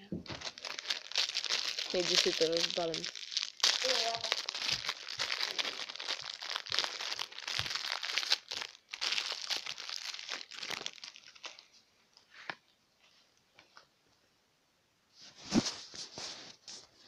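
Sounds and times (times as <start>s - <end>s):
plastic wrapper crinkling and tearing: 0.2s - 11.8s.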